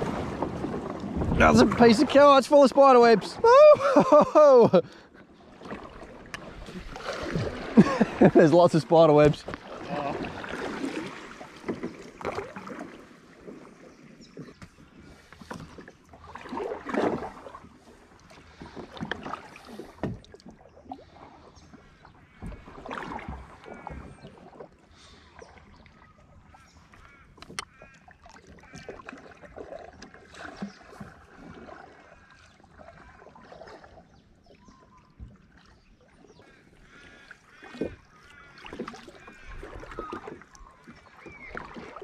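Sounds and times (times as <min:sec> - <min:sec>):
paddle splashing in water: 0:00.0 - 0:42.0
birds calling: 0:21.1 - 0:42.0.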